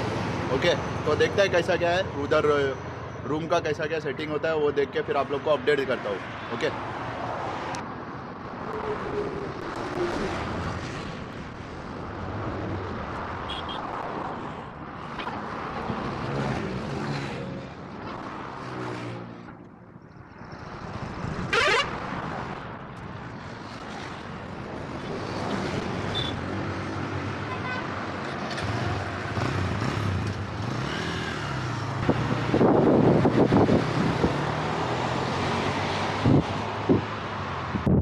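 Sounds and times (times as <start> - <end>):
highway traffic passing: 0.0 - 38.0.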